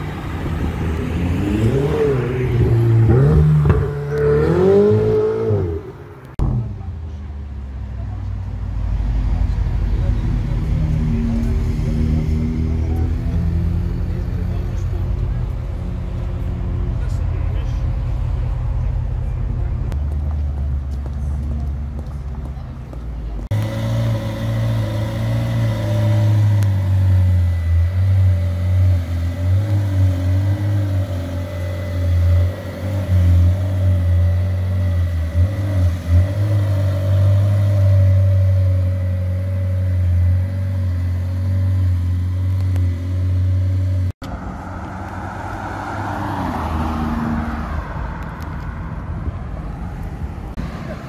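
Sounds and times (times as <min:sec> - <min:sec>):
car driving by: 0:44.2 - 0:51.0.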